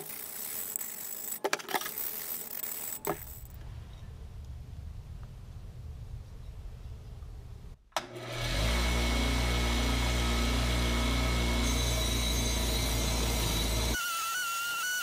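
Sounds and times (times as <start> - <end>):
wire wheel scratching metal: 0.0 - 3.6
bench grinder motor hum: 8.0 - 15.0.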